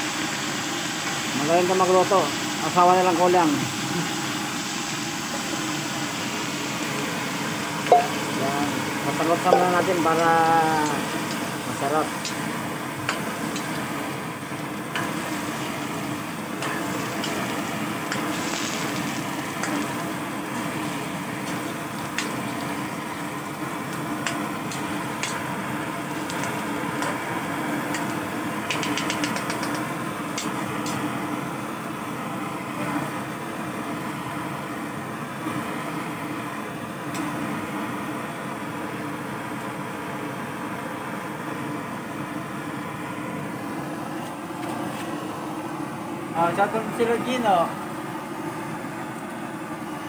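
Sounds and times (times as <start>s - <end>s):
chicken frying in oil: 0.0s - 31.2s
steady low hum: 0.0s - 34.4s
quick clicks: 28.7s - 29.8s.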